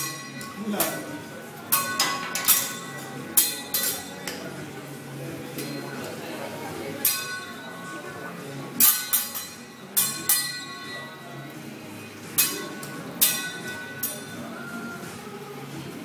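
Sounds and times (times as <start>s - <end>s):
metal spatula and fork clanging: 0.0s - 1.1s, 1.7s - 4.6s, 7.0s - 8.0s, 8.8s - 11.4s, 12.3s - 14.6s.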